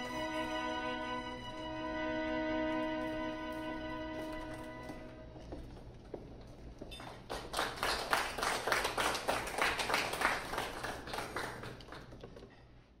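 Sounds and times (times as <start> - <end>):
small audience applauding: 6.9 - 12.5.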